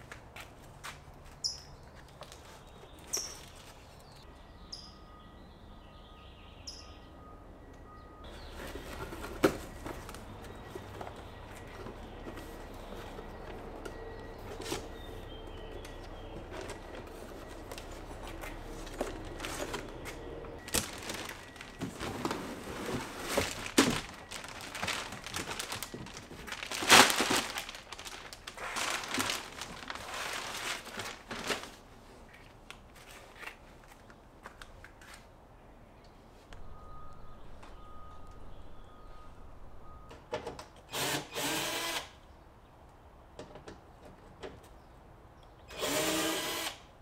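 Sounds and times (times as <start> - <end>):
plastic and cardboard packaging rustling: 8.3 - 35.3.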